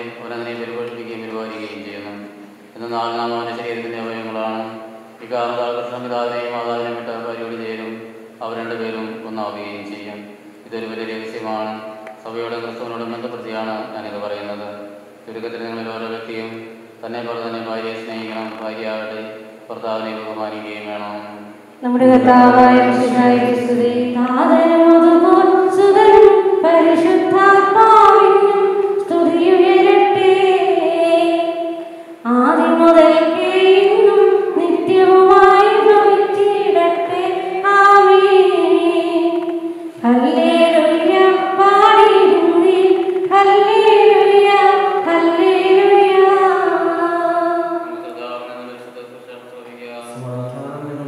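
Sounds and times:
woman singing a hymn: 0:21.8 - 0:47.9.

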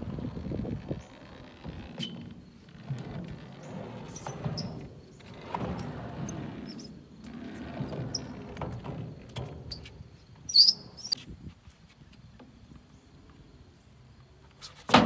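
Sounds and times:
skateboard wheels rumbling: 0:00.0 - 0:11.1
high-pitched squeak: 0:10.5 - 0:11.2.

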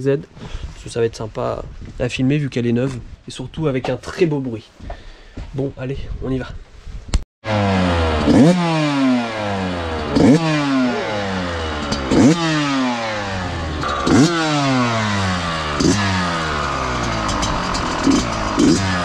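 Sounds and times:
two-stroke engine revving: 0:07.4 - 0:19.0.

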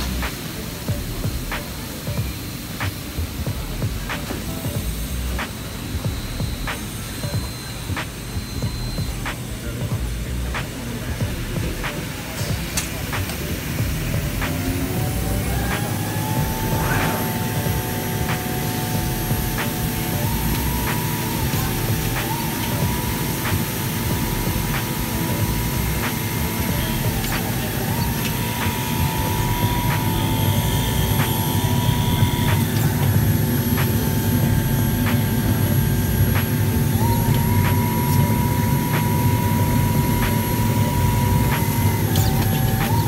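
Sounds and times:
two-pitch machine whine: 0:00.0 - 0:43.0
cutting machine rushing noise: 0:03.6 - 0:43.0.

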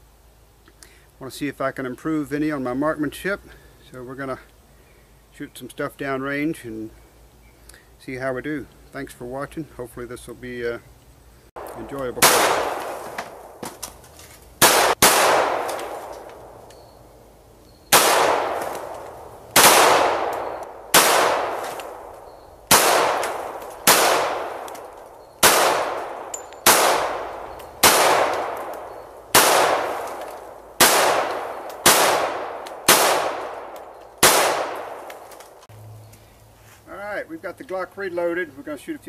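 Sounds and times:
pistol shots with echo: 0:11.6 - 0:13.6, 0:14.6 - 0:16.6, 0:17.9 - 0:35.2.

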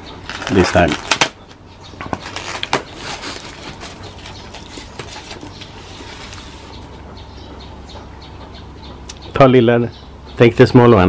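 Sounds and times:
cling film crinkling: 0:00.2 - 0:01.4, 0:02.1 - 0:06.6.

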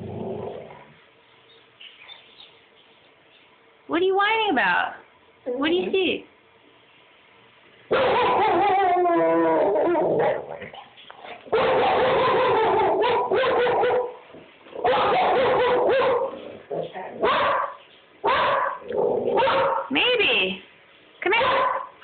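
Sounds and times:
dog yipping: 0:07.9 - 0:10.4, 0:11.6 - 0:14.2, 0:14.8 - 0:16.3, 0:17.2 - 0:19.9, 0:21.3 - 0:21.9
dog whining and howling: 0:08.0 - 0:10.6.

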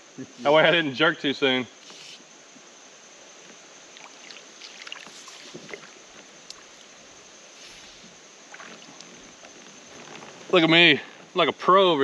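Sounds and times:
soft splashes and ticks: 0:03.5 - 0:07.0, 0:08.5 - 0:10.3
water splashing and dripping: 0:03.9 - 0:07.0, 0:08.4 - 0:09.6.

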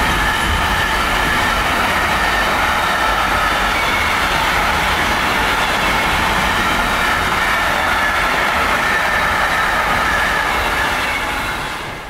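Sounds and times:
freight wagons rumbling on rails: 0:00.0 - 0:12.0.

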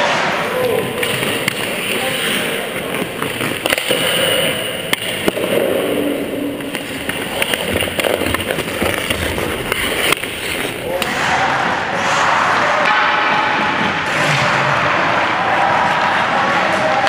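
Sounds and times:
skate blades scraping on ice: 0:01.0 - 0:05.7, 0:06.6 - 0:10.8.

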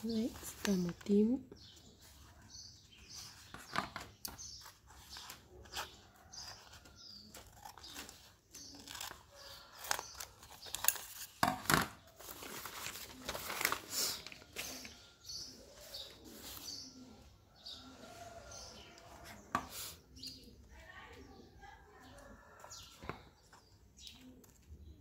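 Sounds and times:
paper rustling and crinkling: 0:00.0 - 0:01.3, 0:01.9 - 0:17.0
scissors snipping paper: 0:04.2 - 0:11.4.

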